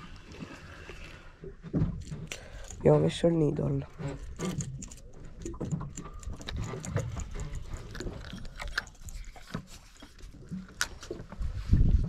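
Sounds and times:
fishing tackle clicks and knocks: 1.7 - 11.4.

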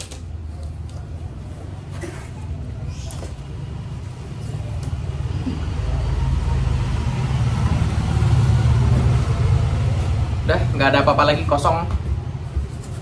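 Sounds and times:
vehicle engine rumble: 1.0 - 11.1.

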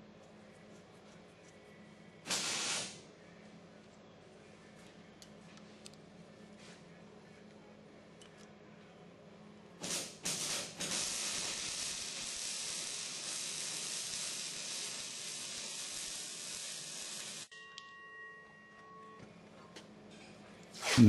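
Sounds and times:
steady hiss: 2.2 - 3.0, 9.8 - 17.5.

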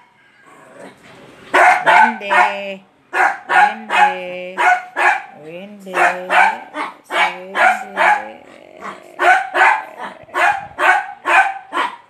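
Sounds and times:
small dog yapping: 1.6 - 2.6, 3.2 - 5.4, 6.0 - 12.0.

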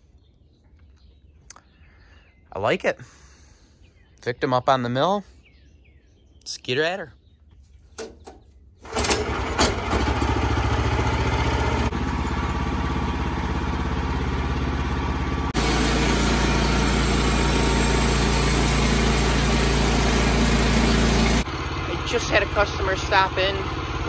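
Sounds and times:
small gasoline engine running: 8.8 - 24.0.

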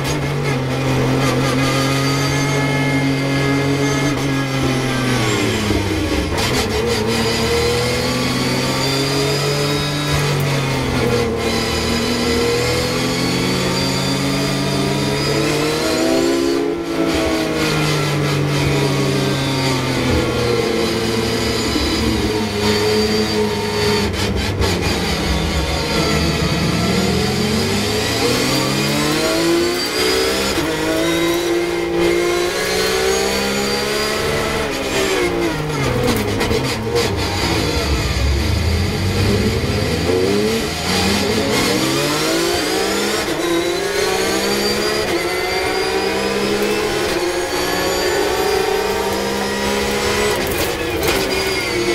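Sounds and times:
race car engine revving: 0.0 - 51.9.

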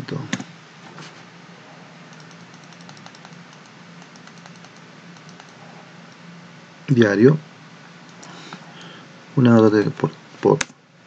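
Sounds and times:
steady low hum: 0.0 - 11.0
computer keyboard clicks: 2.1 - 5.6
computer mouse clicks: 2.1 - 6.2, 8.1 - 8.4.

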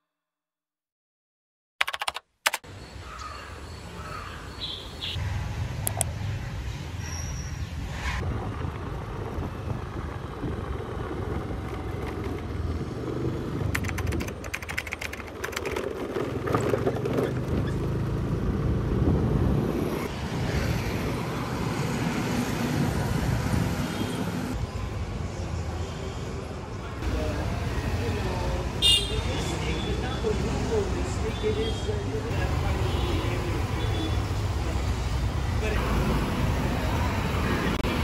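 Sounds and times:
sharp clicks: 1.8 - 2.7, 13.7 - 15.8
road and wind noise: 2.4 - 38.0
traffic passing: 2.6 - 38.0.

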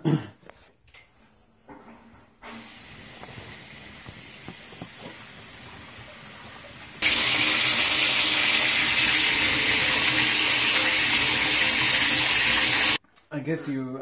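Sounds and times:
coolant water spraying: 2.4 - 13.0.

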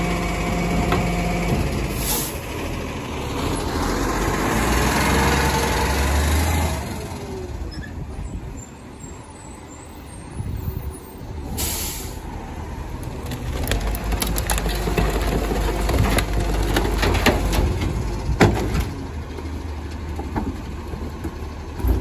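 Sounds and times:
garbage truck engine running: 0.0 - 7.8, 12.3 - 22.0
air hiss: 11.6 - 12.2
boards and furniture banging: 13.3 - 18.9.

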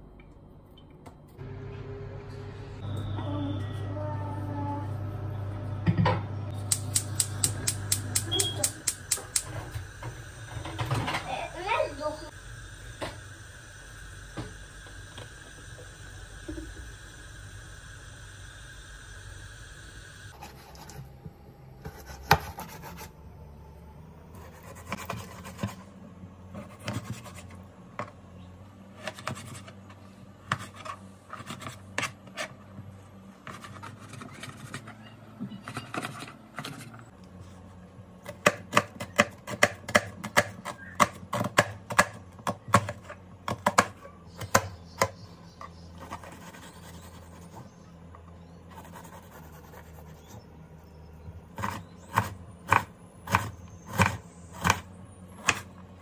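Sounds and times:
knife cutting onion: 26.5 - 27.6, 38.2 - 45.3, 51.5 - 55.8.

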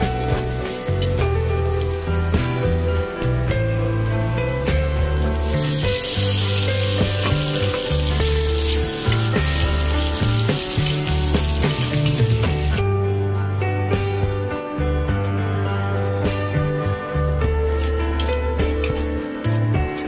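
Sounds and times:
meat sizzling in a wok: 0.0 - 12.8
background music with bass line: 0.0 - 20.0.

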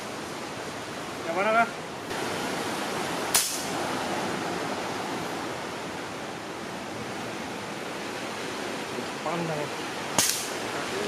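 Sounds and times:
sea surf: 0.0 - 11.0
air rifle shot: 3.3 - 3.7, 10.2 - 10.6.

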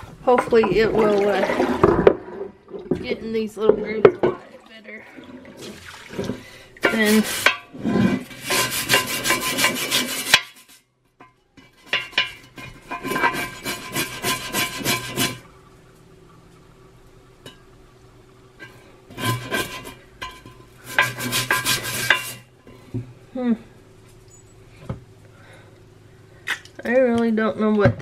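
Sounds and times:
brush scrubbing grill pan: 6.8 - 10.8, 11.7 - 15.5, 19.1 - 22.5.

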